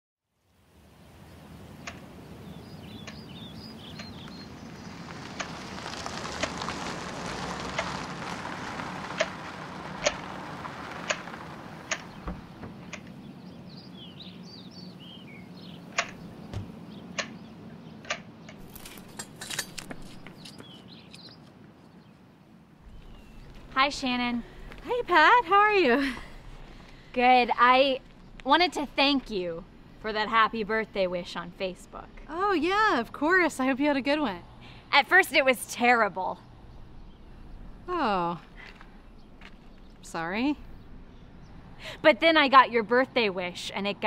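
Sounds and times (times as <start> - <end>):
leaves rustling: 0.7 - 14.4, 18.6 - 21.7, 22.5 - 31.4
birds chirping: 0.9 - 43.6
quick clicks: 11.8 - 12.2.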